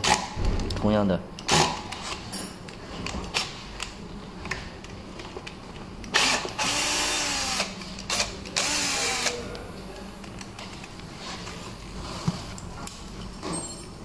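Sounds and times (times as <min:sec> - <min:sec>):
power screwdriver whirring: 0:06.1 - 0:09.4.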